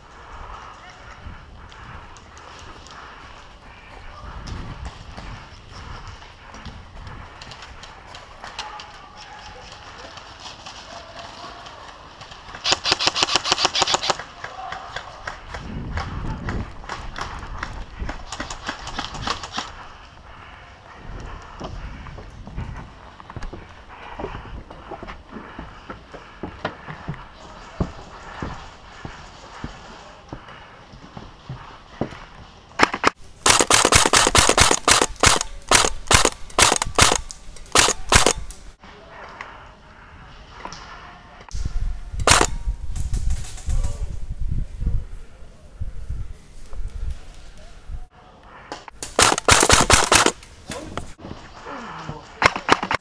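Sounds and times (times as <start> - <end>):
airsoft rifle full-auto burst: 12.6 - 14.2, 33.4 - 38.5, 42.2 - 42.5, 49.1 - 50.4
airsoft single shots and clicks: 32.8 - 38.6, 42.2 - 42.6, 49.0 - 50.4.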